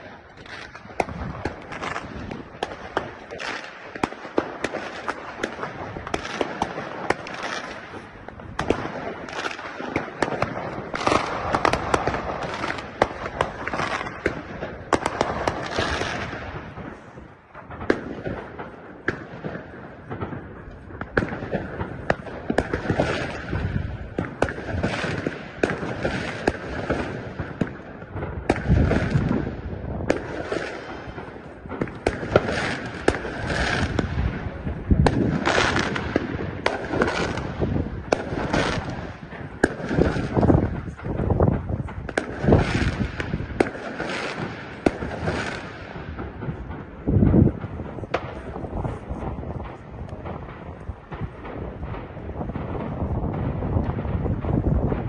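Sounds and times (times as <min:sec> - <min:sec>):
deep firework booms: 0:00.0 - 0:55.0
firecrackers crackling: 0:00.0 - 0:55.0.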